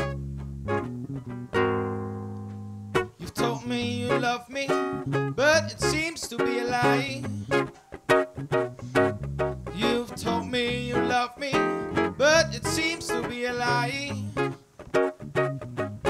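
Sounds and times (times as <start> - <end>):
acoustic guitar: 0.0 - 16.0
bass guitar: 0.0 - 16.0
man singing into a microphone: 3.2 - 7.5, 9.7 - 14.6.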